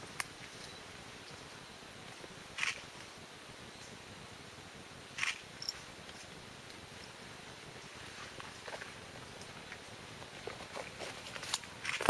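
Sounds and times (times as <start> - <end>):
steady faint hiss: 0.0 - 12.0.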